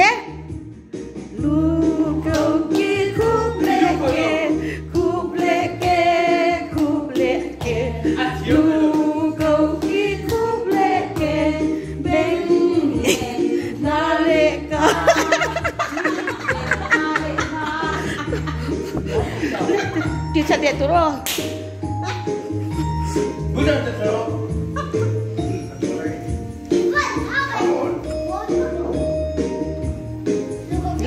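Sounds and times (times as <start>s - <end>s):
person singing: 1.4s - 17.0s.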